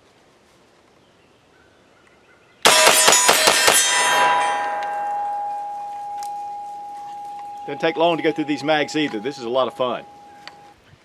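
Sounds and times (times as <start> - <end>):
steel targets ringing: 2.7 - 10.7.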